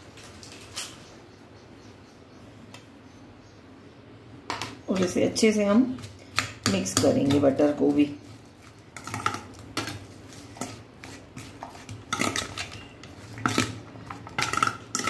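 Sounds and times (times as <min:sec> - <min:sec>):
metal spoon scraping steel bowl: 0:09.0 - 0:15.0.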